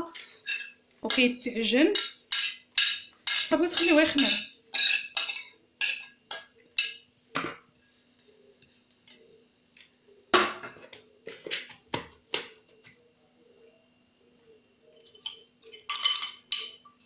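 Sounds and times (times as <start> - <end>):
faint steady hum: 0.0 - 17.0
metal utensil clinking on plate: 1.9 - 7.0, 15.0 - 17.0.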